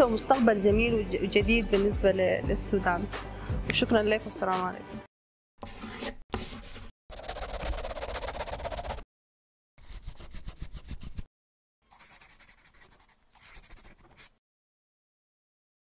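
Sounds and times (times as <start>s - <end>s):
pen scribbling on paper: 5.8s - 9.0s, 9.8s - 11.3s, 11.9s - 14.4s.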